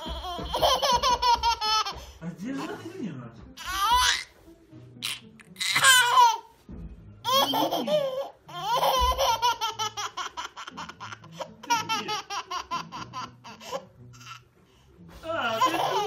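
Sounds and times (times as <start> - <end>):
baby girl laughing: 0.0 - 2.1, 5.0 - 6.6, 7.2 - 14.4, 15.6 - 16.0.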